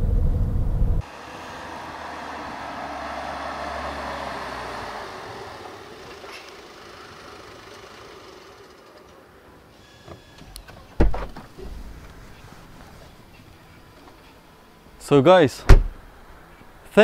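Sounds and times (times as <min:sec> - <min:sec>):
car driving slowly past: 0:00.8 - 0:09.7.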